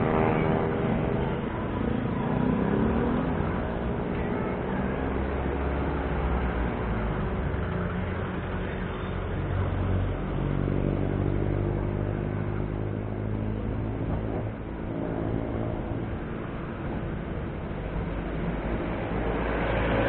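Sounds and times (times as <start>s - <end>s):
constant rushing noise: 0.0s - 20.0s
motor vehicle engines: 0.0s - 20.0s.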